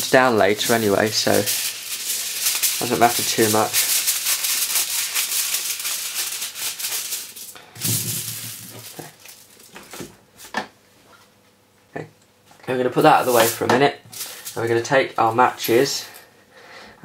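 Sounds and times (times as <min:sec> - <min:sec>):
knocks of foil being handled: 0:00.4 - 0:10.1, 0:13.2 - 0:14.7
foil crinkling as scissors cut: 0:00.5 - 0:10.0.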